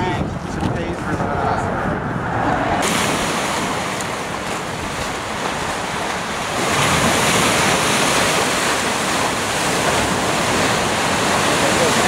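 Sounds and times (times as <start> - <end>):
wind buffeting microphone: 0.0 - 12.0
waves breaking against rocks: 2.8 - 12.0.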